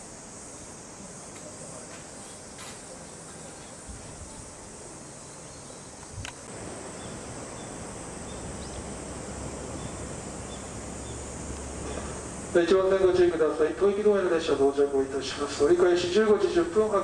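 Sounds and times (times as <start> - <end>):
high insect drone: 0.0 - 17.0
click: 6.0 - 6.4
electric train rumbling: 6.5 - 17.0.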